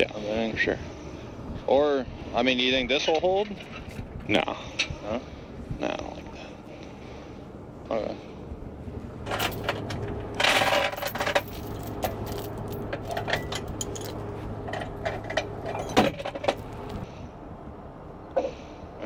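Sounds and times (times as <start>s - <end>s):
steady low hum: 0.0s - 19.0s
chains clinking and rattling: 9.2s - 17.1s.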